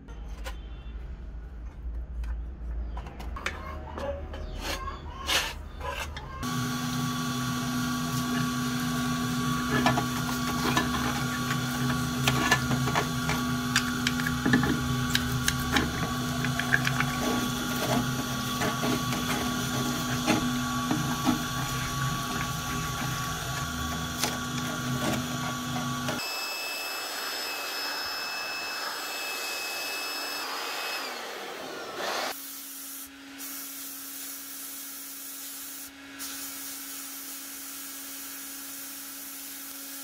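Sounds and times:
machine hum: 6.4s - 32.4s
brush scrubbing metal: 7.6s - 26.2s.

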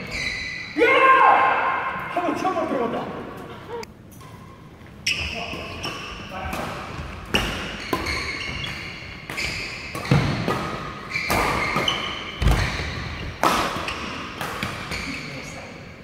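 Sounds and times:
shoes squeaking on floor: 0.0s - 0.8s, 4.4s - 6.4s, 7.0s - 10.4s, 11.0s - 14.2s
rackets hitting shuttlecock: 5.6s - 15.1s.

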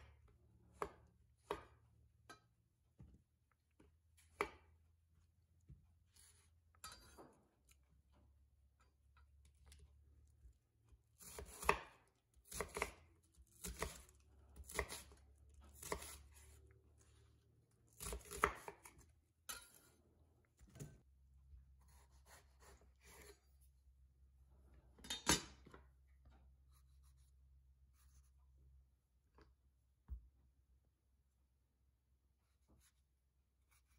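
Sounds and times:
knife cutting onion on wooden board: 0.0s - 2.0s, 6.1s - 7.4s, 11.0s - 17.1s, 17.9s - 19.9s, 21.8s - 23.6s, 32.4s - 33.9s.

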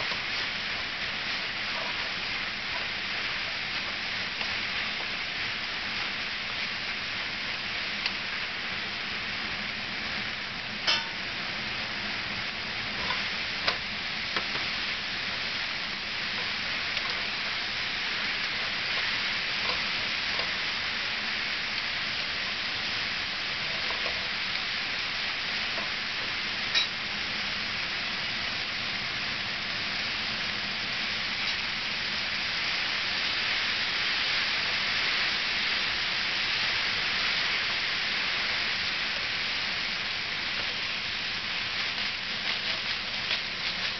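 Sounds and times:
vegetables sizzling in frying pan: 0.0s - 43.9s.

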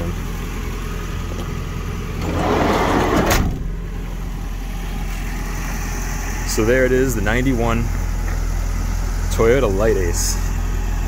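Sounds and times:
sliding van door rolling and shutting: 2.2s - 3.8s.

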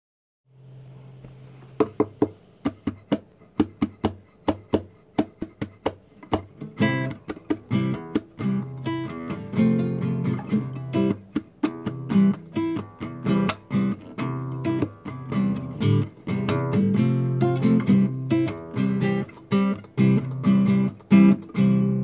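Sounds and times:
acoustic guitar: 0.7s - 22.0s.

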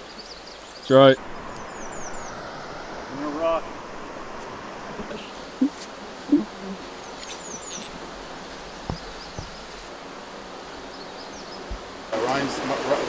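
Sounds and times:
outdoor background hiss: 0.0s - 13.0s
light knocks: 8.8s - 9.8s.

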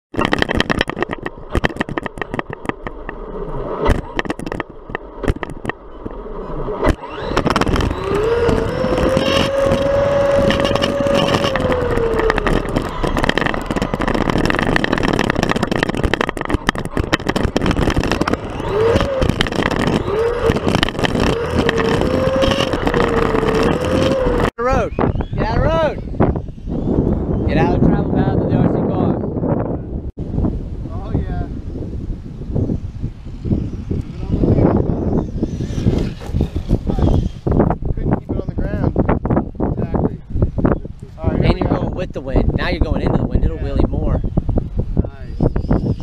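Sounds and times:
clicks and rattles: 0.1s - 3.2s, 3.8s - 6.2s, 6.8s - 24.5s
wind and road noise: 0.1s - 46.0s
electric motor whine: 2.9s - 24.5s, 32.8s - 37.8s.

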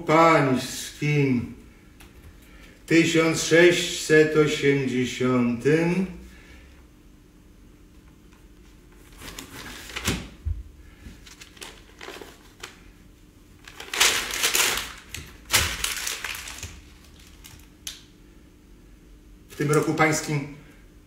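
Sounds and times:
paper rustling: 8.9s - 10.4s, 11.1s - 12.9s, 13.6s - 17.7s.

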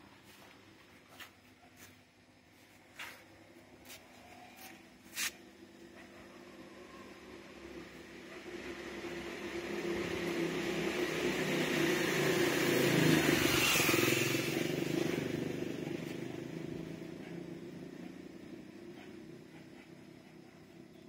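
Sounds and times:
motor vehicle passing by: 6.0s - 20.8s.

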